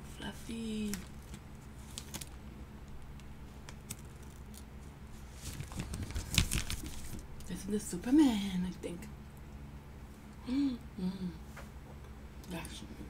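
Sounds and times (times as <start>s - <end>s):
plastic bag crinkling: 0.7s - 7.4s.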